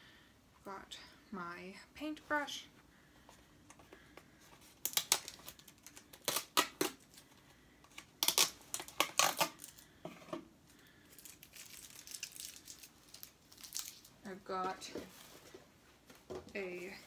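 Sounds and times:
tape peeling off plastic: 4.8 - 7.2, 8.0 - 9.8.

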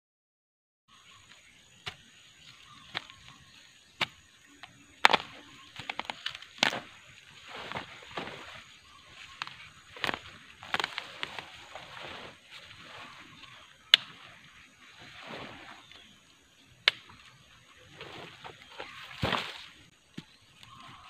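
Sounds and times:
hands rustling soil and leaves: 1.4 - 21.0
earth clods breaking: 5.0 - 14.4, 18.0 - 19.8.

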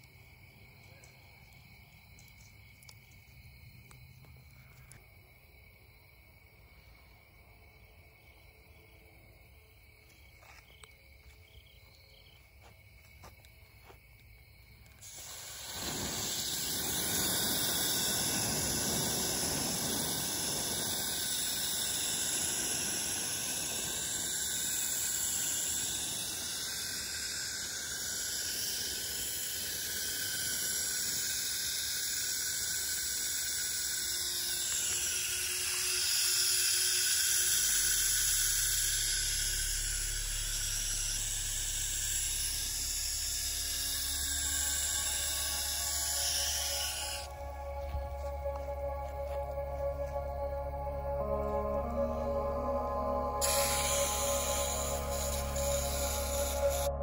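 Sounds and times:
crickets chirping: 0.0 - 57.0
water spattering on embers: 15.0 - 47.3
steam hissing: 15.0 - 57.0.

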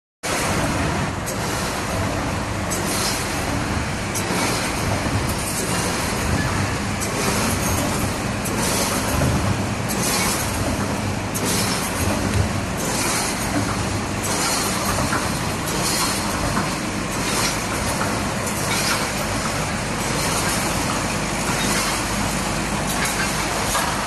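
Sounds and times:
wire mesh machine clattering: 11.4 - 24.0.

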